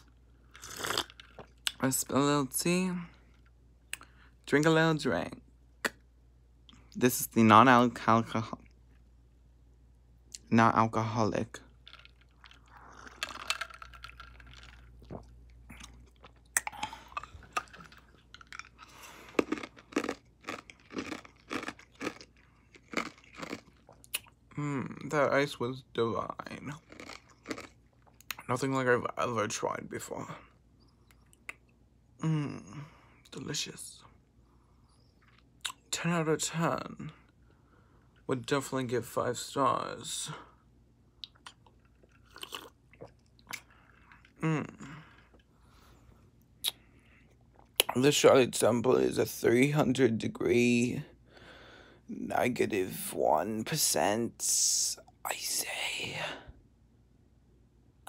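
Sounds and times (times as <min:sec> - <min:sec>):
sipping and chewing mouth sounds: 0:11.7 - 0:24.4, 0:41.2 - 0:45.5.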